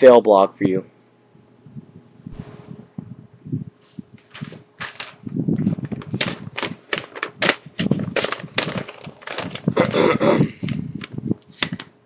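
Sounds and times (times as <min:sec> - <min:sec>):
paper crackling and rustling: 0:04.0 - 0:12.0.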